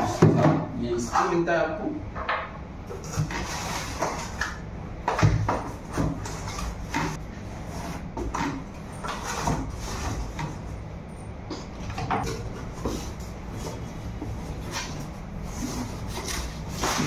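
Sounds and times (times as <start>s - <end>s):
cardboard scraping and rustling: 2.9s - 4.4s, 5.5s - 10.8s, 12.2s - 17.0s.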